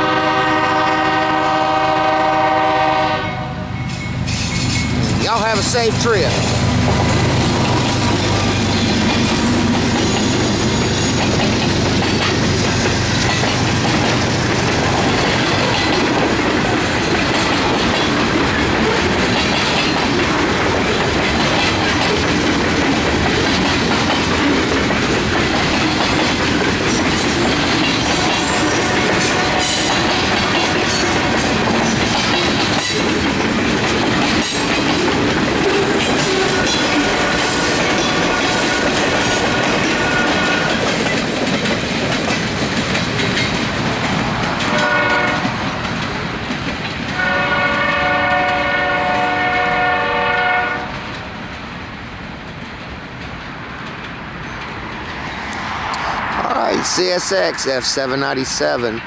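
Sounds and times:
diesel locomotive rumble: 0.0s - 59.0s
train wheels clicking over rail joints: 3.8s - 49.2s, 50.9s - 59.0s.

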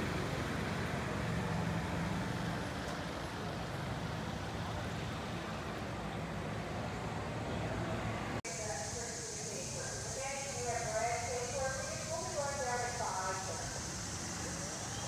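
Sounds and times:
vehicle motor hum: 0.0s - 8.4s
outdoor background noise: 0.0s - 15.0s.

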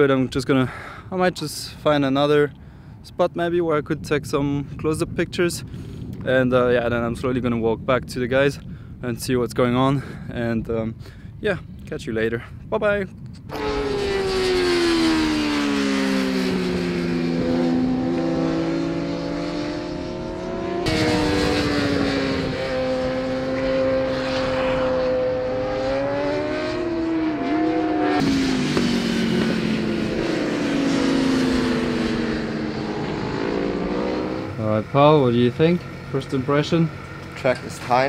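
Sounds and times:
racing motorcycle engines revving: 13.5s - 38.0s.

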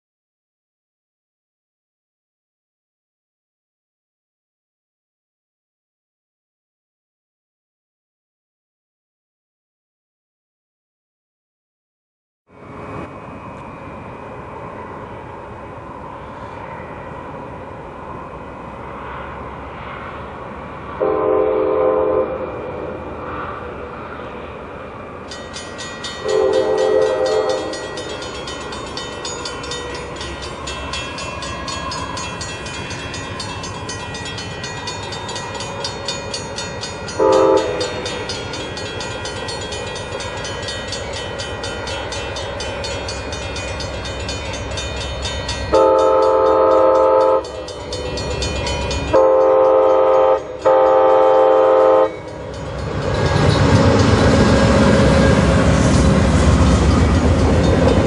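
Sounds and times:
locomotive engine and wheels: 12.5s - 58.0s
train air horn blasts: 21.0s - 23.5s, 26.2s - 27.9s, 37.2s - 38.2s, 45.7s - 48.2s, 49.1s - 52.3s
crossing bell ringing: 25.1s - 58.0s.

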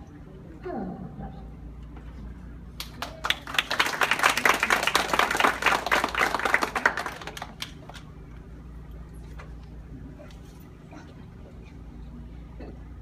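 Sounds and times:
audience clapping: 2.8s - 8.1s.

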